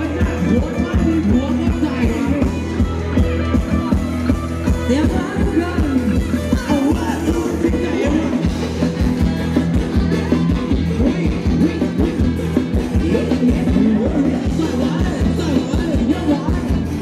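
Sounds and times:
person singing: 0:10.6 - 0:17.0.

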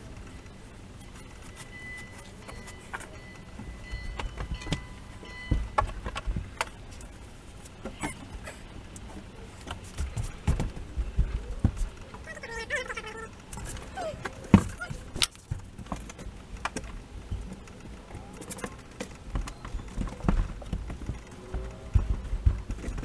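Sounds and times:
insulation rustling: 0:00.0 - 0:23.0
knocks and thumps: 0:03.6 - 0:06.8, 0:09.7 - 0:12.3, 0:18.6 - 0:23.0.

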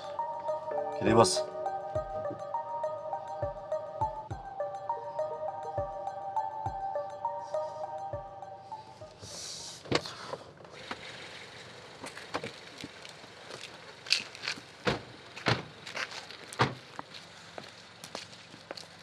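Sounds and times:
footsteps on wet concrete: 0:12.0 - 0:14.7, 0:15.8 - 0:19.0
car doors slamming: 0:14.8 - 0:15.8, 0:16.4 - 0:16.9.

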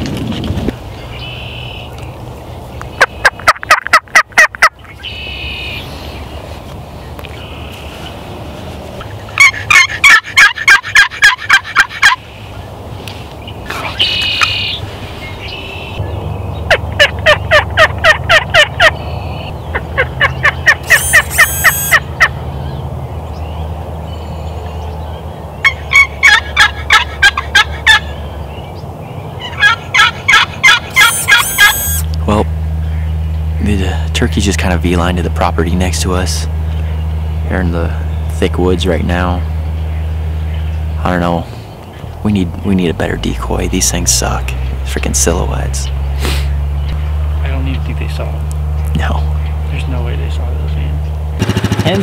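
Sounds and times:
turkey yelping: 0:03.0 - 0:05.8, 0:09.4 - 0:12.2, 0:13.9 - 0:14.8, 0:16.7 - 0:22.4, 0:25.6 - 0:28.1, 0:29.4 - 0:32.1.

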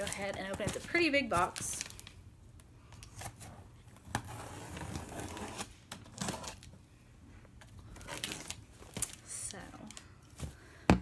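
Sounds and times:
packing tape cut and pulled: 0:04.1 - 0:06.7, 0:08.0 - 0:09.6.

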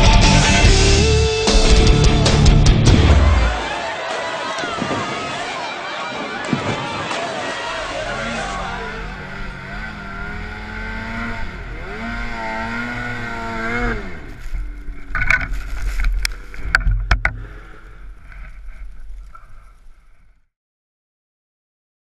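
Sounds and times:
snowmobile engine revving: 0:00.0 - 0:16.7.

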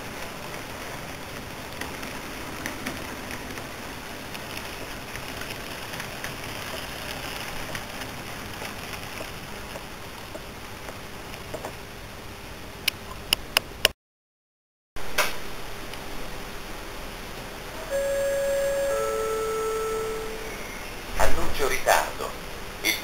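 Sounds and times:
model train running on track: 0:17.8 - 0:20.6.

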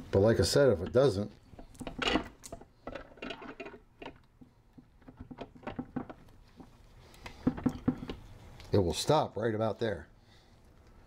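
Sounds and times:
metal parts clicking and knocking: 0:01.6 - 0:04.3.

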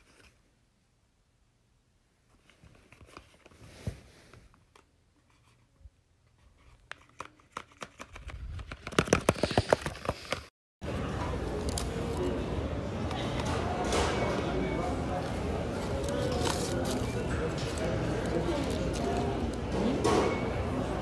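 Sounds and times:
paper crinkling and rustling: 0:15.2 - 0:19.6.

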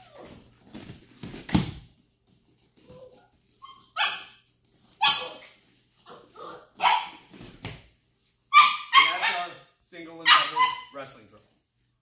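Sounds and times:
dog whining: 0:00.0 - 0:00.5
small dog barking: 0:04.0 - 0:04.4, 0:06.4 - 0:07.2, 0:10.3 - 0:10.9.

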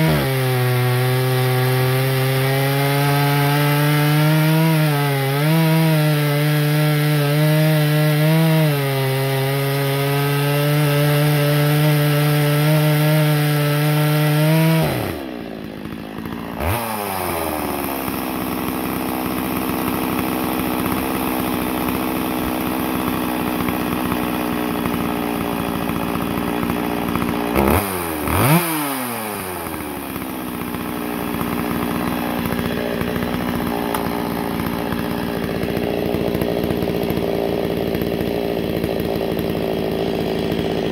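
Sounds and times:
chainsaw cutting log: 0:00.0 - 0:40.9
chainsaw idling: 0:00.0 - 0:40.9.

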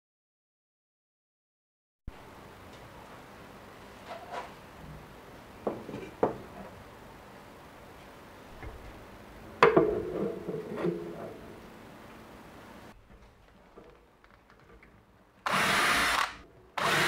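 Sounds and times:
plastic frame knocking on table: 0:09.6 - 0:10.9.

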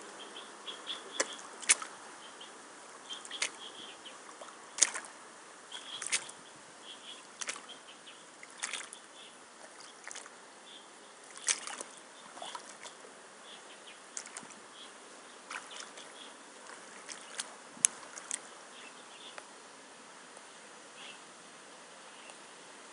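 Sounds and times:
boots splashing in muddy water: 0:01.0 - 0:02.0, 0:03.1 - 0:06.4, 0:07.3 - 0:07.8, 0:08.4 - 0:10.4, 0:11.2 - 0:13.0, 0:14.1 - 0:14.7, 0:15.4 - 0:18.5.

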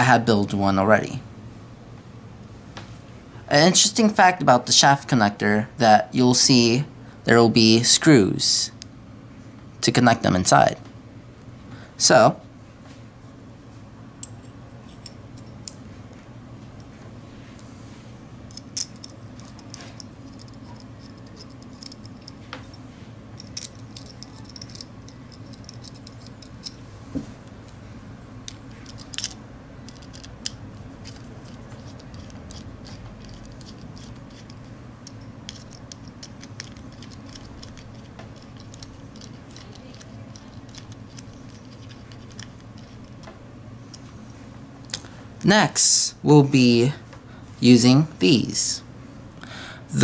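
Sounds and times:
steady low hum: 0:00.0 - 0:50.0
small metal clicks: 0:23.4 - 0:26.8, 0:28.4 - 0:43.3.

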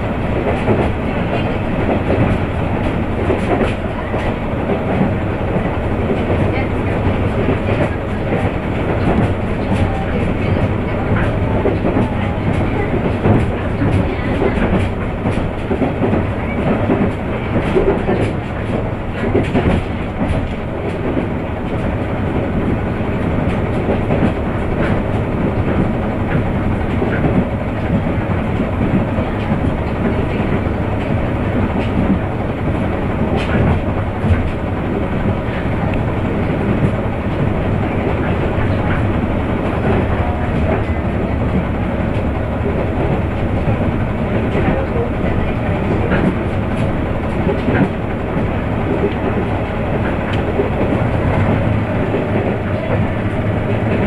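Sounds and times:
diesel railcar running: 0:00.0 - 0:54.0.

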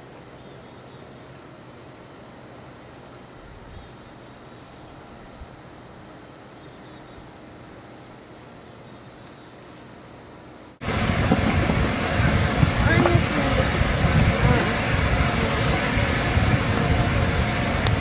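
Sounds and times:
background hiss and hum: 0:00.0 - 0:18.0
faint bird chirps: 0:02.7 - 0:09.7.

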